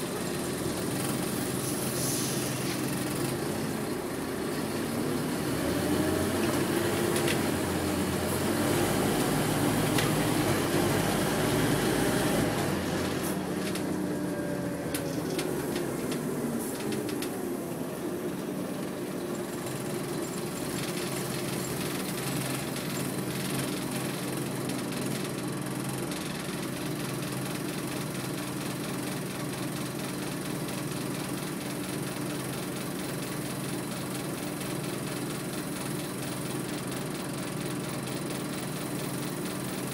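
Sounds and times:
bus diesel engine running: 0.0s - 39.9s.

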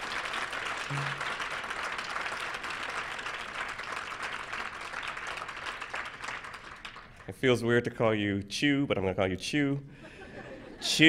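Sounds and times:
audience applauding: 0.0s - 7.3s.

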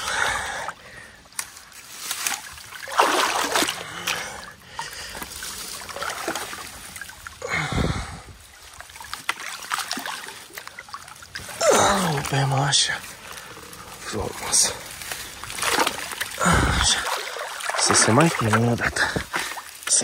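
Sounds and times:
water splashing and sloshing: 0.0s - 20.0s.

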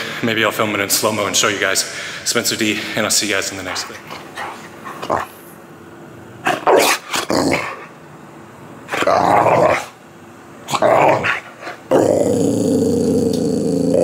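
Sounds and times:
dog growling: 4.0s - 5.4s, 6.4s - 7.9s, 8.9s - 10.0s, 10.7s - 14.0s.

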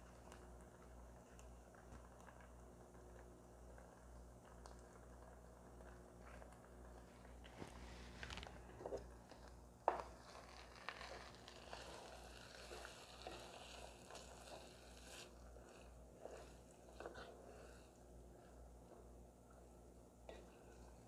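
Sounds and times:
spatula scraping metal pot: 9.9s - 17.7s.

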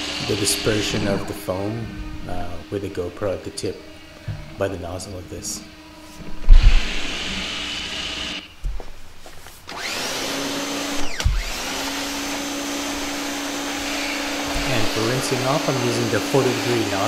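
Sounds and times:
pressure washer humming: 0.0s - 8.6s, 9.7s - 17.0s
pressure washer whine: 0.0s - 8.6s, 9.7s - 17.0s
water spraying: 13.8s - 17.0s.

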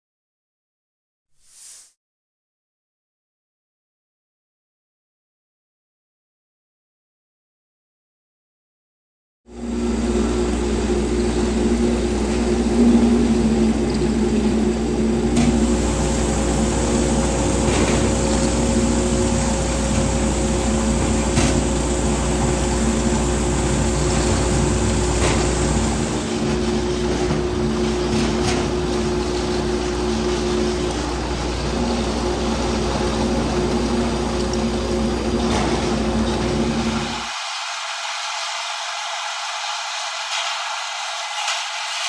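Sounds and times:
roller conveyor humming: 9.5s - 42.0s.

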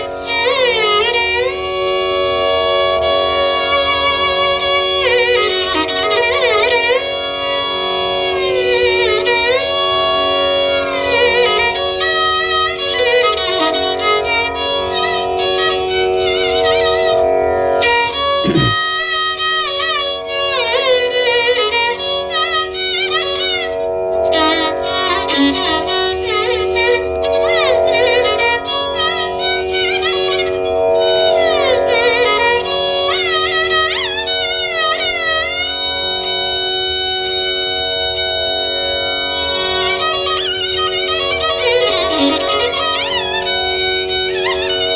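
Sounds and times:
violin melody with sliding phrases: 0.0s - 18.7s, 19.8s - 44.9s
steady drone: 16.0s - 18.9s.

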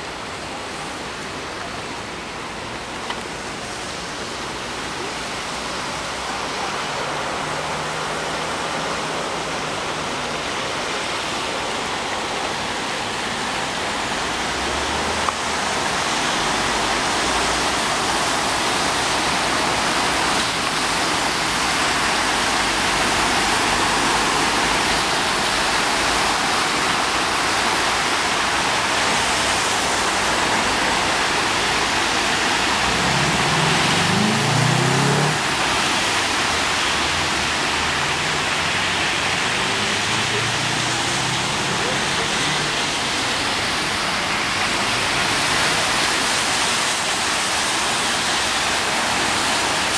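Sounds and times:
rush of flowing floodwater: 0.0s - 49.9s
vehicle engine rising in pitch: 32.7s - 35.6s.

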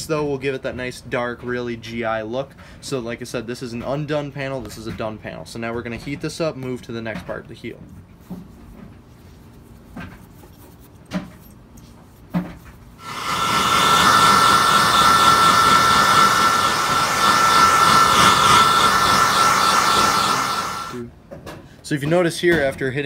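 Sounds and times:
hairdryer blowing air: 13.0s - 21.0s.

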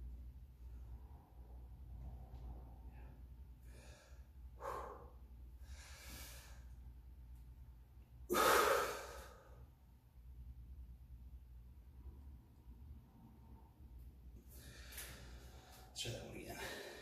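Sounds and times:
man breathing hard: 2.8s - 6.8s, 8.3s - 9.7s, 14.4s - 17.0s
man exhaling forcefully: 8.3s - 9.6s.

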